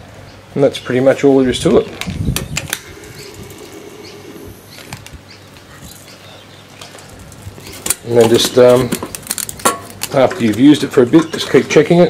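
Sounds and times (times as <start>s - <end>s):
bellows whoosh of air: 2.6s - 6.0s.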